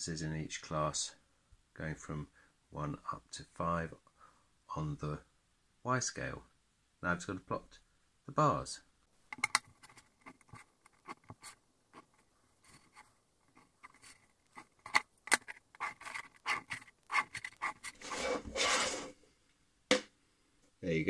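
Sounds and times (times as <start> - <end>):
rubbing scrape: 9.7 - 19.2
pen scratching on paper: 15.7 - 19.1.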